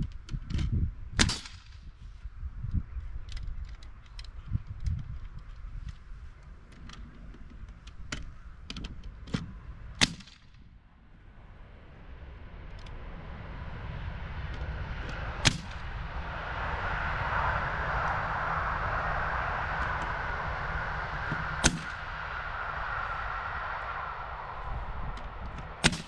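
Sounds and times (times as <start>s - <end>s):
nail gun shots: 10.0s - 10.4s
steady hiss: 11.3s - 26.0s.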